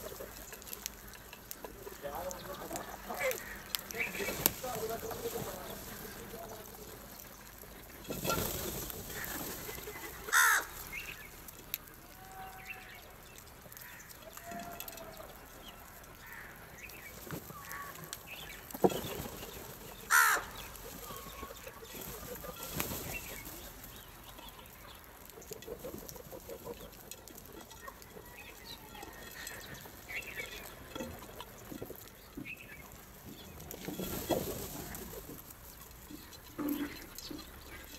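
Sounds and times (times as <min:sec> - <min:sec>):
wings fluttering: 0:00.0 - 0:11.9, 0:16.3 - 0:37.9
crows cawing: 0:02.3 - 0:04.2, 0:09.0 - 0:11.2, 0:13.7 - 0:15.2, 0:16.0 - 0:18.5, 0:20.0 - 0:21.5.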